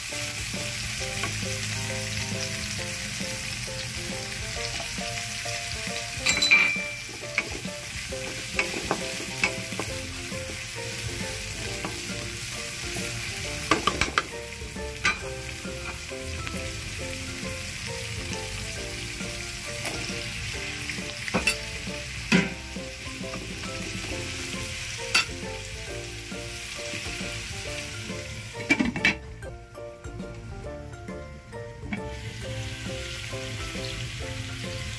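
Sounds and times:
food sizzling in hot oil: 0.0 - 34.9
utensil knocking against pan: 6.2 - 10.6, 13.6 - 14.4, 22.3 - 22.7.

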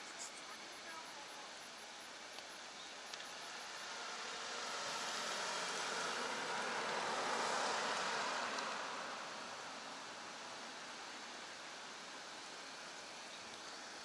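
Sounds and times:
car driving past: 3.3 - 11.5.

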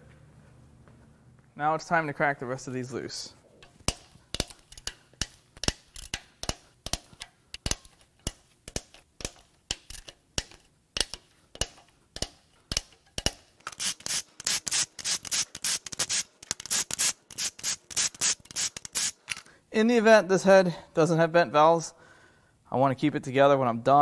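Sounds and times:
hand ratchet clicking: 3.9 - 19.5.

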